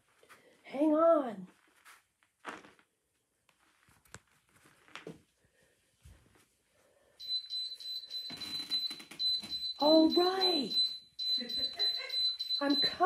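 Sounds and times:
high-pitched electronic alarm: 0:07.2 - 0:13.0.

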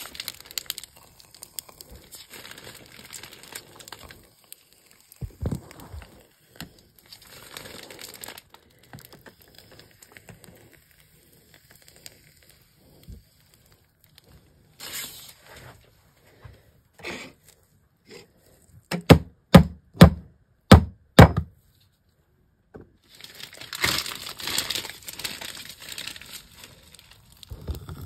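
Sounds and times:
dull knock: 0:19.0 - 0:21.5.

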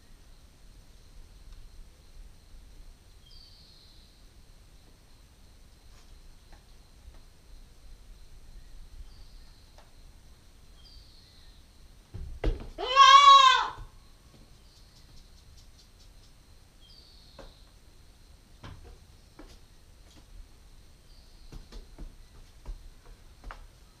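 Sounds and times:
goat kid bleating: 0:12.8 - 0:13.9.

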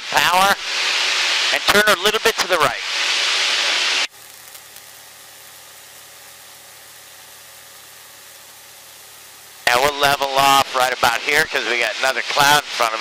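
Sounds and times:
faint engine drone: 0:02.6 - 0:12.9.

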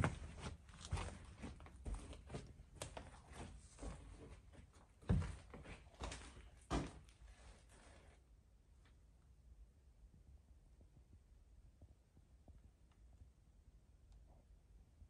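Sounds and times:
footsteps on debris: 0:00.0 - 0:04.4.

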